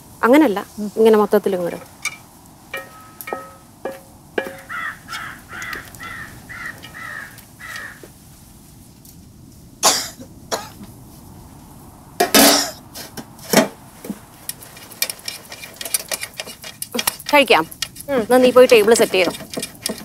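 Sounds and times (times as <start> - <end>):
crow cawing: 2.8 - 3.6, 4.4 - 8.1
metal lid clattering on pot: 2.8 - 4.7, 12.2 - 12.8
sharp knocks: 2.8 - 5.8.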